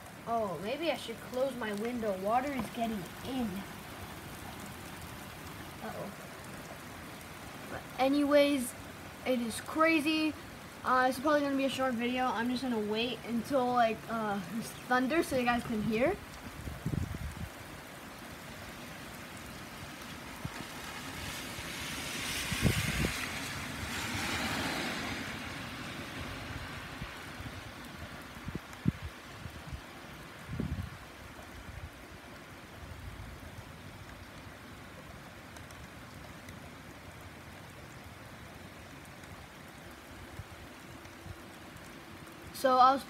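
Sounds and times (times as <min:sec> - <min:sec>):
heavy rain: 0:00.0 - 0:43.0
car tyres hissing on wet road: 0:19.8 - 0:27.8.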